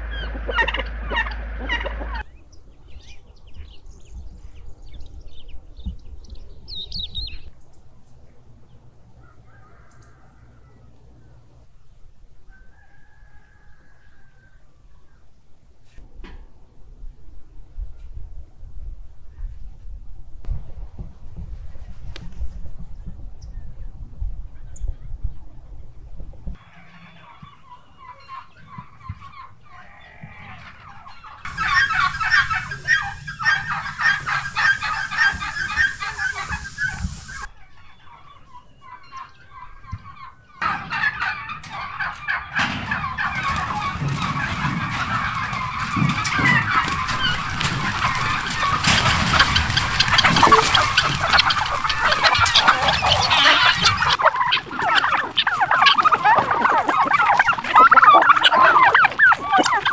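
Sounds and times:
chickens clucking: 0.0 - 2.4, 26.6 - 59.9
turkeys gobbling: 0.0 - 2.4, 26.6 - 59.9.

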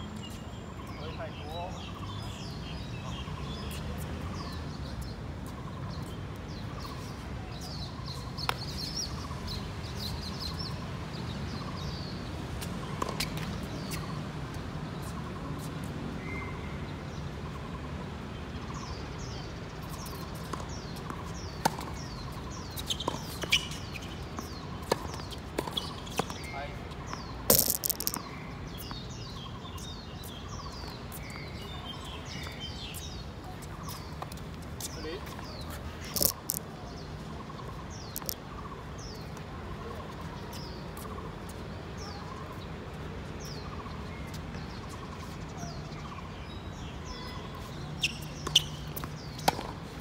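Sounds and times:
birds chirping: 0.0 - 50.0
sharp clicks or knocks: 27.5 - 28.2.

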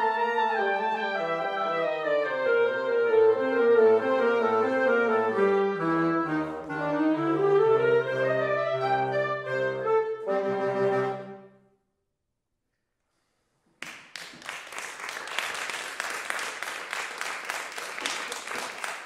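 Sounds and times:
audience applause: 13.8 - 19.0.

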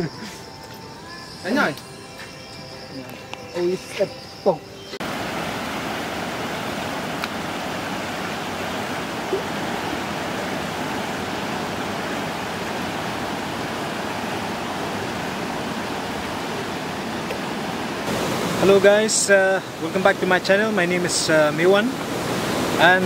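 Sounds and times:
river rushing over rapids: 5.0 - 23.0.

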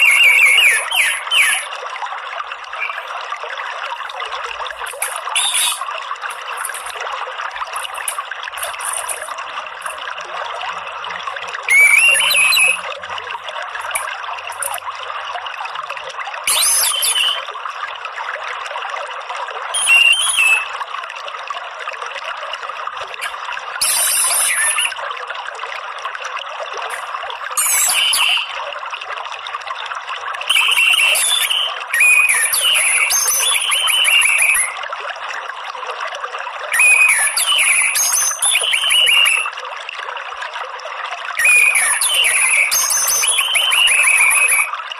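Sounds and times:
thrush chattering calls: 0.0 - 1.7, 5.1 - 6.9, 11.7 - 12.8, 27.6 - 28.5
trickle of running water: 0.0 - 44.9.

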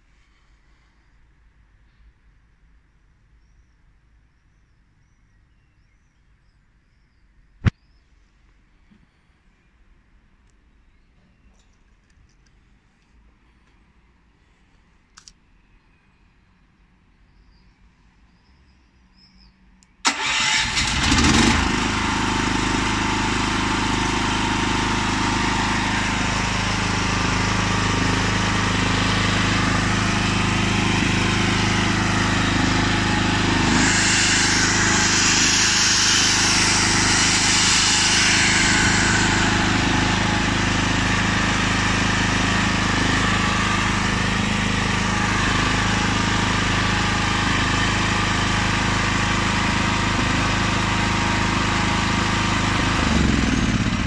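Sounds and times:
generator engine starting and running: 20.0 - 54.0
electric drill running: 20.8 - 54.0.

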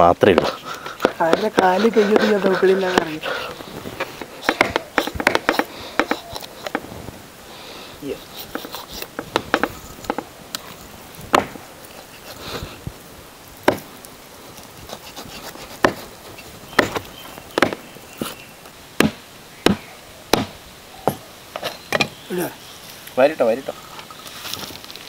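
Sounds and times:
cleaver chopping on wooden block: 0.3 - 3.1, 4.4 - 6.8, 11.3 - 11.6, 13.7 - 13.9, 15.8 - 16.0, 16.8 - 17.0, 17.6 - 17.8, 19.0 - 21.2.

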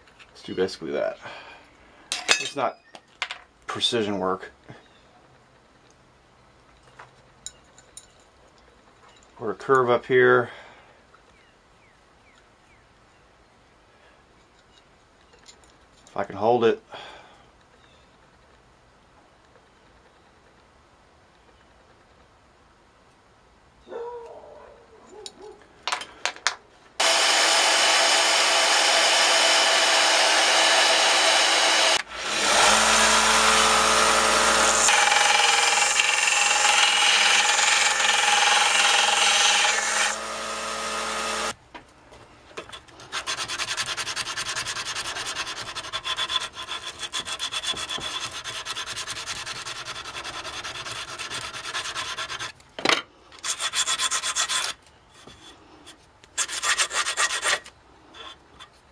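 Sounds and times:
hand file rasping on steel: 27.0 - 41.5, 42.7 - 52.6, 53.4 - 58.8
belt sander grinding steel: 27.0 - 41.6, 42.6 - 52.6, 53.4 - 55.6, 56.4 - 58.8.

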